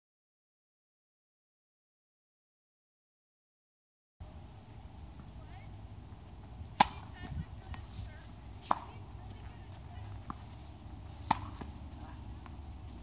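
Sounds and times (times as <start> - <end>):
tennis ball struck by racket: 6.7 - 13.0.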